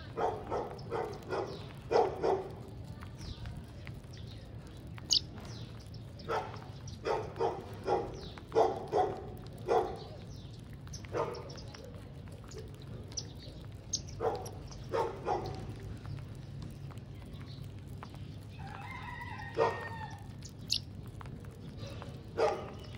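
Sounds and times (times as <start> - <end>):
small birds chirping: 0.0 - 22.9
animal calls: 12.4 - 15.8.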